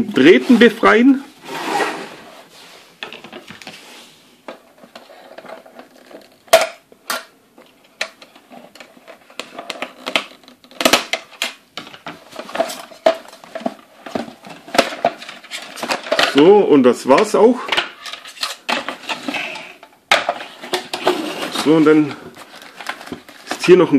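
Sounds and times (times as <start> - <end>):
toy and cardboard rattling: 8.1 - 23.9.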